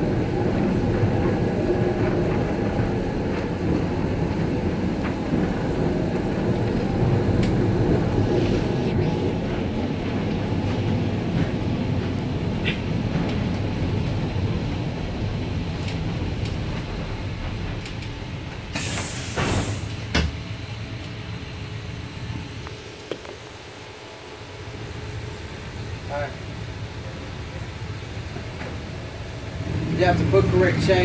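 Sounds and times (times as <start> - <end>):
streetcar rumbling on rails: 0.0 - 31.0
hiss burst: 18.7 - 20.1.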